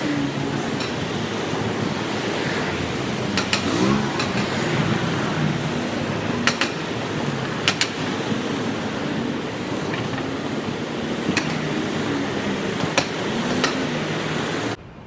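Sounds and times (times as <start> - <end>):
cars driving past: 0.0 - 14.8.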